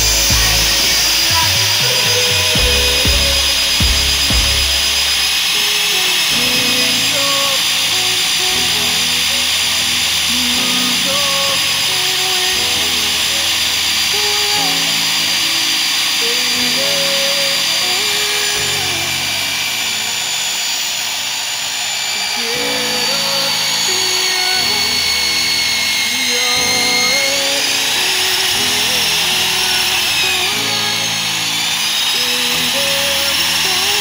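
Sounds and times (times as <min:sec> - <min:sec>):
background music: 0:00.0 - 0:34.0
core drill whining into concrete: 0:00.0 - 0:34.0.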